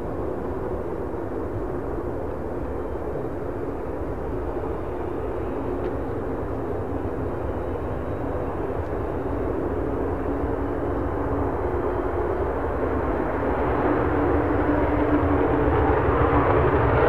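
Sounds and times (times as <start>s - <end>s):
fighter jet engine rushing: 8.5s - 17.0s.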